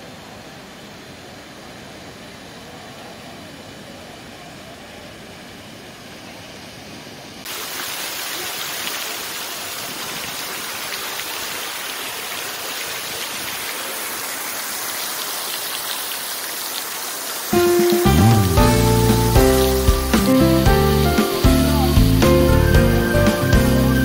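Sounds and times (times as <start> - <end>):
fountain water splashing: 6.3 - 24.0.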